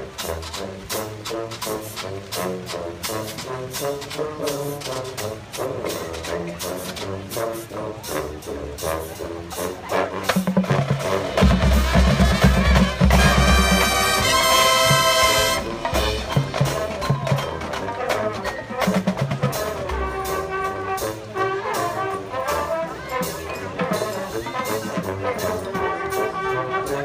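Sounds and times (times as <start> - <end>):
drums and mallet keyboards: 0.0 - 27.0
brass held chord: 10.8 - 16.8.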